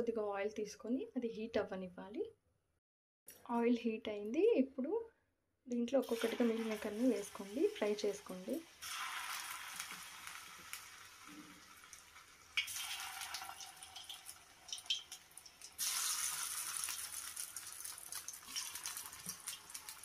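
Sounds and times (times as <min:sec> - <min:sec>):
food deep-frying in oil: 0:06.0 - 0:20.0.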